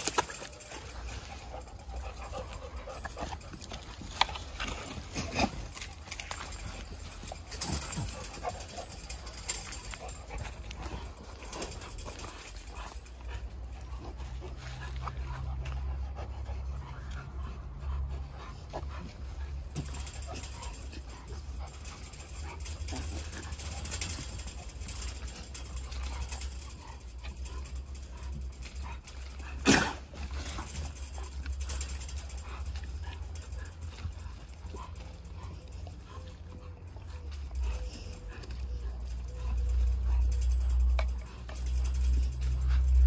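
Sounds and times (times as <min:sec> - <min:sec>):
dogs panting: 0:00.0 - 0:43.0.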